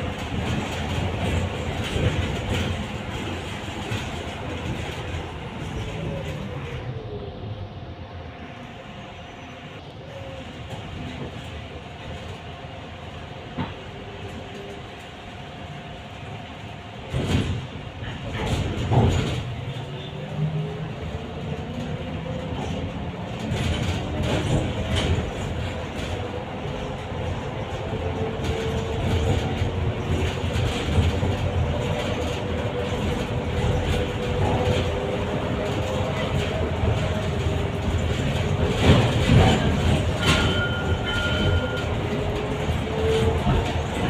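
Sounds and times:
bus body rattle: 0.0 - 6.1, 16.9 - 20.1, 21.5 - 44.0
road rumble: 0.0 - 44.0.

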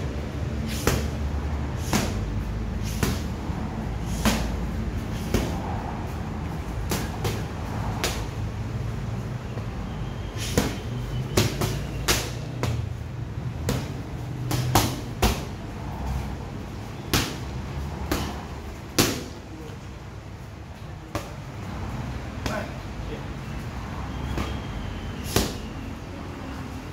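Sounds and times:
boxing gloves slapping mitts: 0.0 - 8.4, 10.4 - 16.3, 17.1 - 19.4, 24.2 - 25.7
steady low hum: 0.0 - 26.9.

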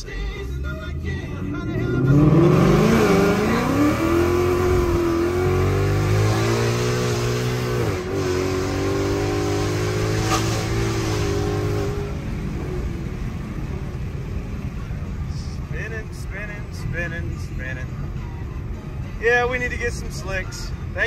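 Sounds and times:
car engine at full throttle: 0.0 - 16.5.

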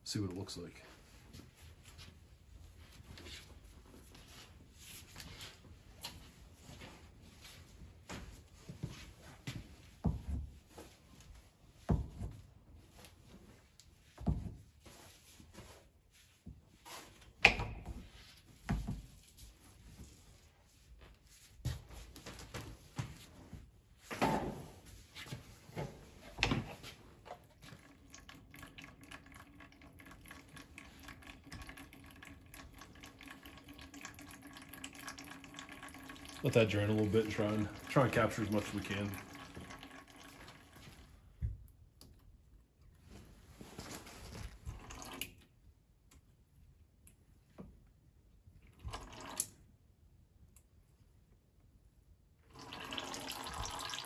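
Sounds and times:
oil trickling: 27.4 - 41.0, 52.5 - 54.0.

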